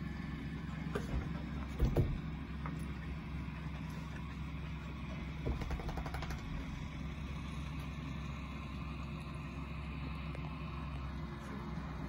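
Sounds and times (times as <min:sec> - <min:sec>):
tractor engine running: 0:00.0 - 0:12.0
rapid rattling clicks: 0:05.4 - 0:06.8.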